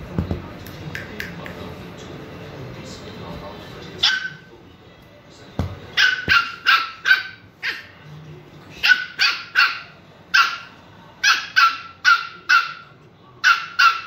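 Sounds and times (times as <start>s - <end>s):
puppy barking: 4.0s - 4.5s, 6.0s - 8.0s, 8.8s - 14.0s.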